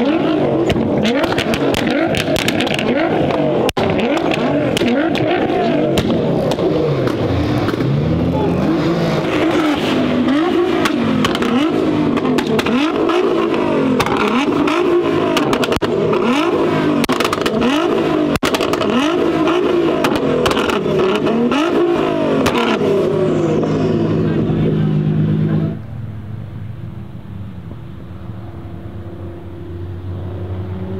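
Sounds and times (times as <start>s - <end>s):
exhaust pops and crackles: 0.0s - 8.0s, 9.3s - 22.9s
car engine revving: 0.0s - 30.9s.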